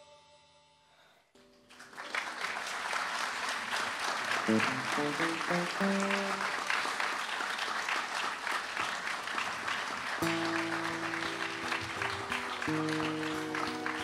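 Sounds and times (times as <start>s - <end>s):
audience applauding: 1.6s - 14.0s
instrument notes: 4.5s - 6.6s.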